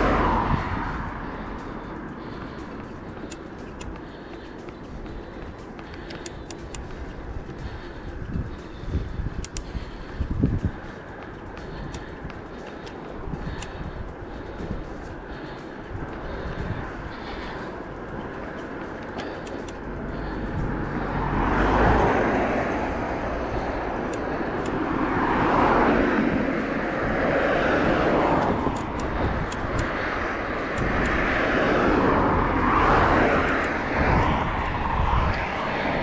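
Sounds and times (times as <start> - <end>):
wind rumble on microphone: 0.0 - 4.0, 5.0 - 18.8, 19.4 - 36.0
cars passing: 0.0 - 36.0.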